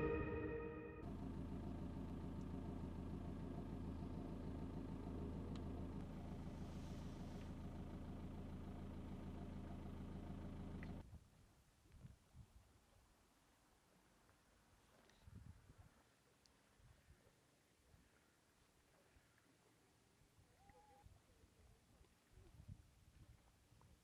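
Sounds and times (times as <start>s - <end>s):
electronic jingle: 0.0s - 1.0s
low engine hum: 1.0s - 11.0s.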